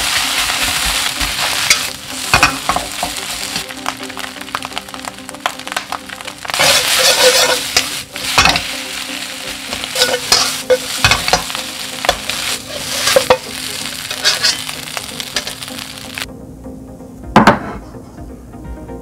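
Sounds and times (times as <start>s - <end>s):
metal spatula scraping a pan: 0.0s - 3.6s, 5.5s - 16.0s
rice sizzling in a wok: 0.0s - 16.3s.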